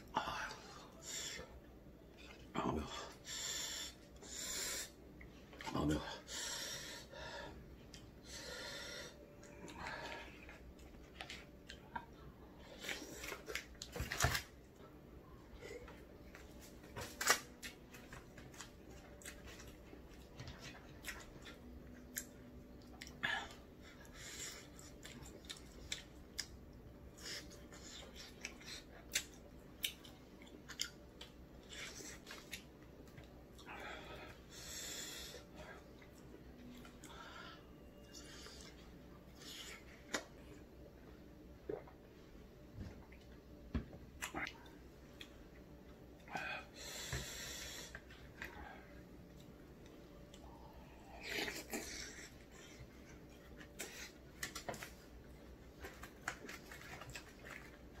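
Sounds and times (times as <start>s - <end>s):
chewing rice cakes: 16.3s - 37.2s, 47.6s - 58.0s.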